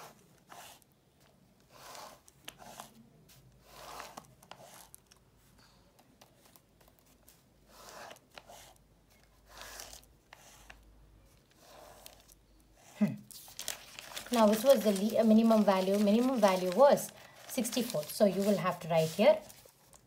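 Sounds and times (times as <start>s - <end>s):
hand rustling over paper: 13.3s - 20.0s.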